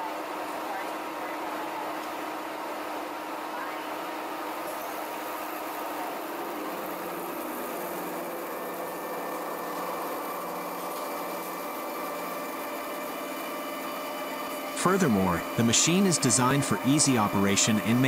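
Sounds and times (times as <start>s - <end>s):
milling machine hum: 0.0s - 18.0s
coolant hiss: 4.4s - 18.0s.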